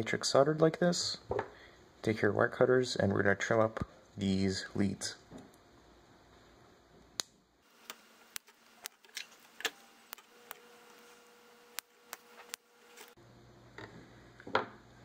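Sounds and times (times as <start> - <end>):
wire cutters snipping: 7.8 - 13.2.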